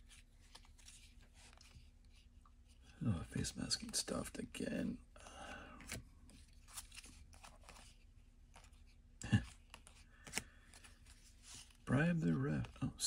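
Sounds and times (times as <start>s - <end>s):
trading cards rustling: 5.8s - 13.0s.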